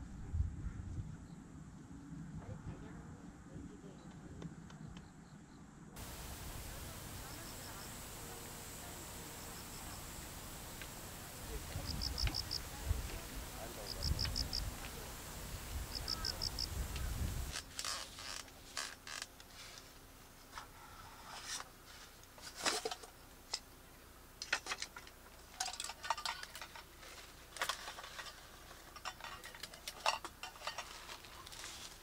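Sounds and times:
wind rumble: 0.0 - 4.3, 6.0 - 17.6
metal cookware clinking: 29.0 - 31.1.

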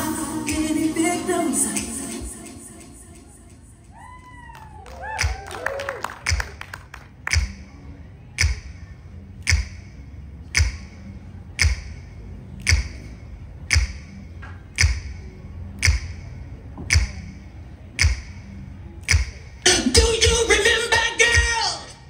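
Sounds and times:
percussive beat with clap and thump: 5.1 - 7.7, 8.4 - 8.7, 9.5 - 9.8, 10.6 - 10.9, 11.6 - 12.0, 12.7 - 13.0, 13.7 - 14.1, 14.8 - 15.2, 15.8 - 16.2, 16.8 - 17.2, 18.0 - 18.4, 19.0 - 19.4.

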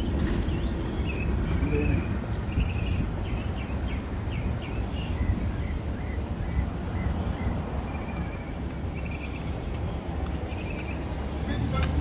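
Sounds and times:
small birds chirping: 0.0 - 12.0.

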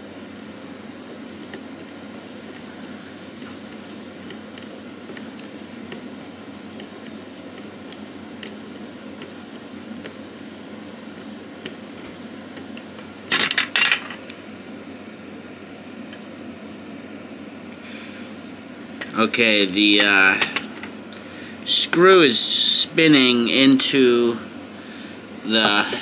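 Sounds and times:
steady hum: 0.0 - 26.0
metal parts clattering on tray: 13.3 - 14.2.

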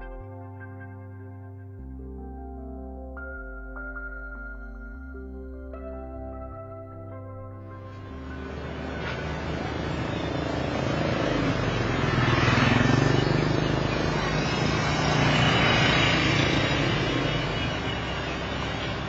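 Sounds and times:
vehicles passing close by: 7.9 - 19.0.

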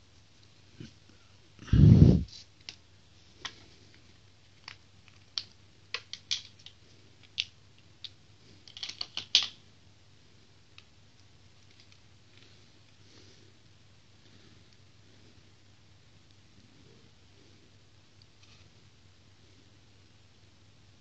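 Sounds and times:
batteries clicking into plastic case: 4.6 - 7.5, 8.6 - 9.6.

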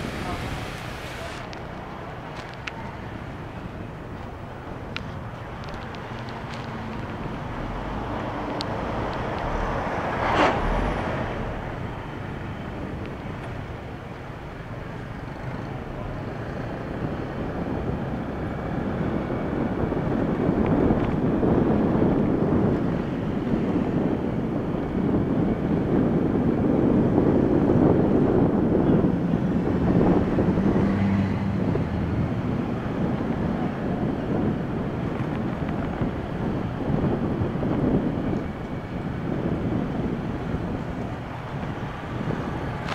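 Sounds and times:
traffic road noise: 0.0 - 42.9.

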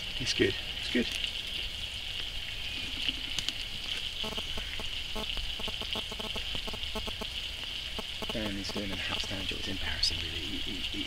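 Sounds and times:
vegetables sizzling in frying pan: 0.8 - 11.0
crackles and pops: 3.0 - 9.5.

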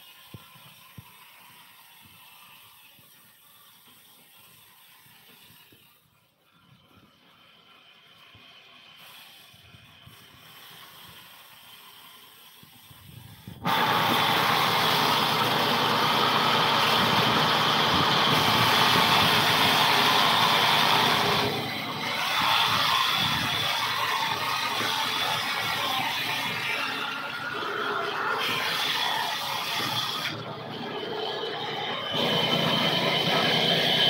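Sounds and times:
band saw cutting log: 7.4 - 34.0.

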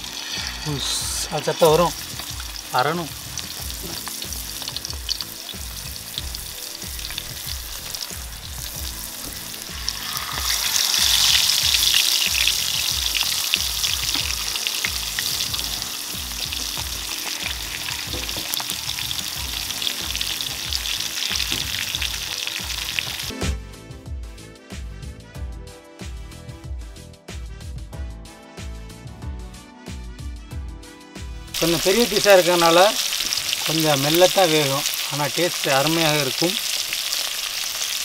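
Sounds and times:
fish sizzling in hot oil: 0.0 - 23.3, 31.6 - 38.0.

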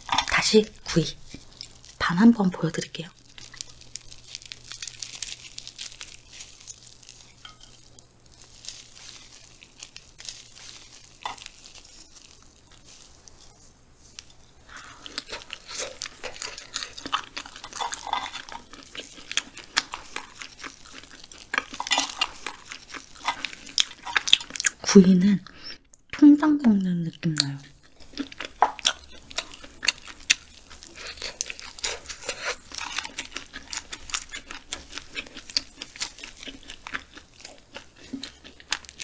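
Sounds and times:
crisp bites and chewing: 0.0 - 2.0, 3.0 - 24.8, 27.3 - 39.0
faint crackles: 0.0 - 24.8
tearing grilled food apart: 3.2 - 24.8, 27.8 - 39.0.

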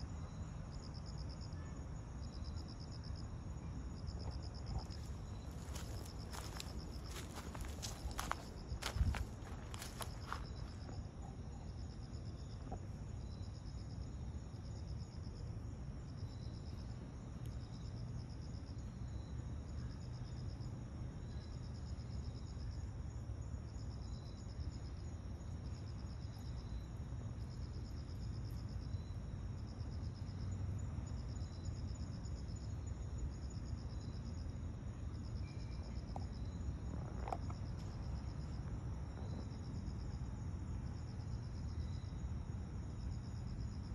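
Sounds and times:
continuous high ringing: 0.0 - 43.9
crickets chirping: 0.0 - 43.9
pulsed insect trill: 2.2 - 15.4.

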